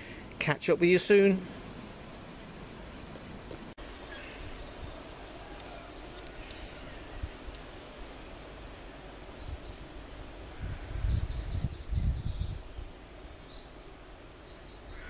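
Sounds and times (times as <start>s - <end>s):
birds chirping: 3.8s - 15.0s.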